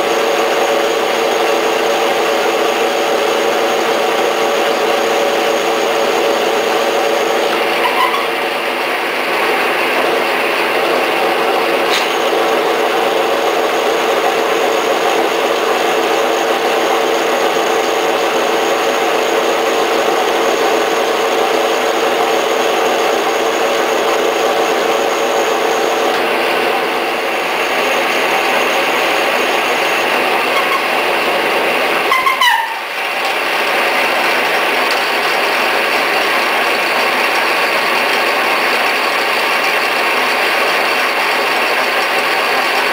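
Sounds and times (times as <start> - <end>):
drill press running: 0.0 - 42.9.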